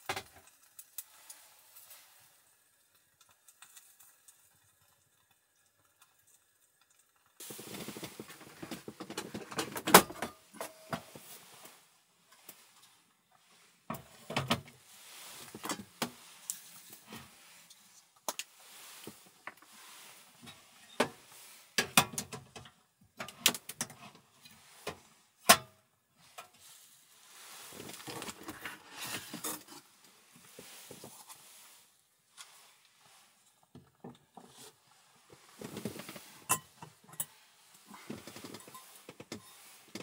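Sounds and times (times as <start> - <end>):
rustling: 7.3 - 21.8, 26.2 - 40.0.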